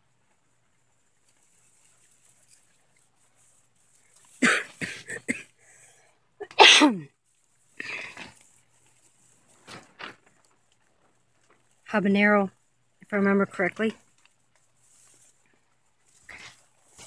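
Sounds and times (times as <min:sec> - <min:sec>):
person coughing: 0:04.4 - 0:05.6, 0:06.4 - 0:07.1.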